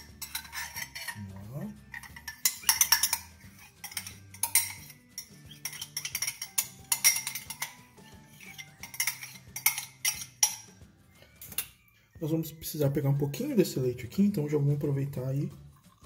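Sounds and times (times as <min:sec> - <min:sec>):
metal spoon scraping plastic cup: 0:00.0 - 0:10.7
spoon clinking against bowl: 0:00.0 - 0:10.8.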